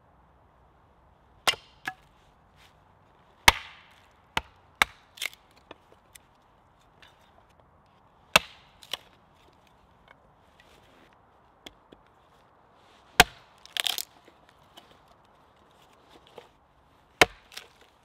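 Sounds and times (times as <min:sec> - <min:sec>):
hatchet splitting wood on block: 0:01.4 - 0:02.0, 0:03.4 - 0:05.8, 0:08.4 - 0:09.1, 0:13.2 - 0:14.1, 0:17.2 - 0:17.9.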